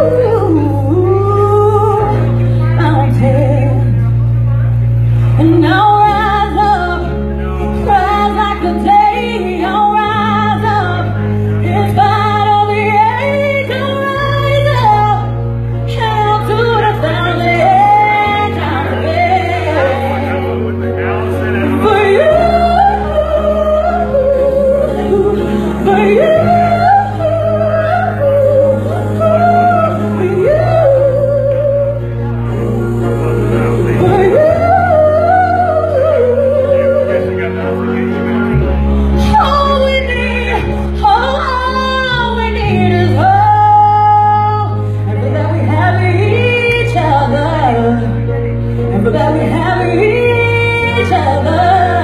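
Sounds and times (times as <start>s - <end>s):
woman singing a ballad: 0.0s - 4.4s, 5.4s - 37.9s, 39.1s - 52.0s
sustained bass and chords: 0.0s - 52.0s.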